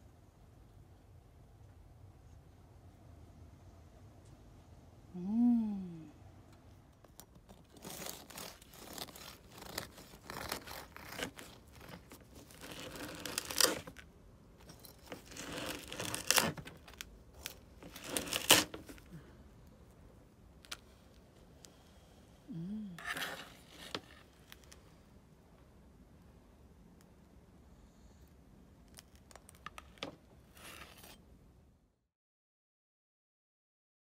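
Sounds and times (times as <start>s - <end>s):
knife sawing bread crust: 7.8s - 13.9s, 15.1s - 16.6s, 17.8s - 19.0s.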